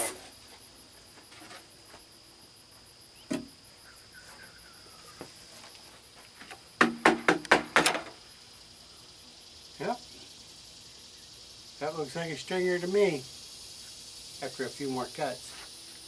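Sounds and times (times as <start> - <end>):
insects chirping: 0.0 - 16.0
knock: 6.8 - 8.1
plywood sheet knocking on sawhorses: 6.8 - 8.2.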